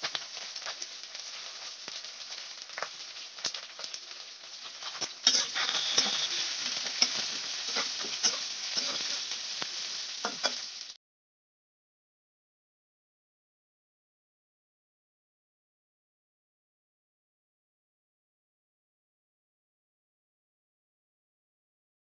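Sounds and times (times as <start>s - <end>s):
spatula scraping a pan: 0.0s - 10.8s
vegetables sizzling in hot oil: 0.0s - 11.0s.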